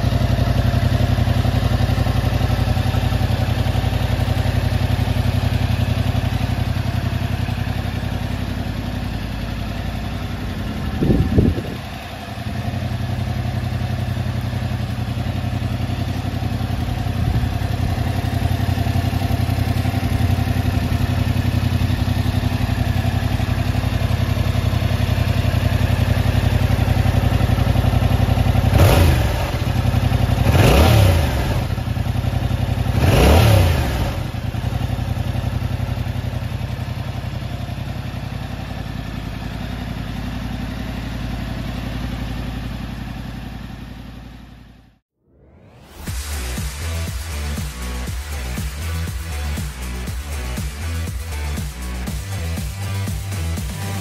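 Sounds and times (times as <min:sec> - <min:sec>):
motorcycle engine idling and revving: 0:00.0 - 0:54.0.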